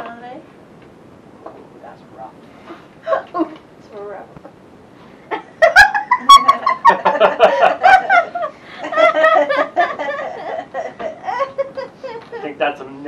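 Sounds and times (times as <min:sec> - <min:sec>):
laughter: 0:05.3 - 0:12.6.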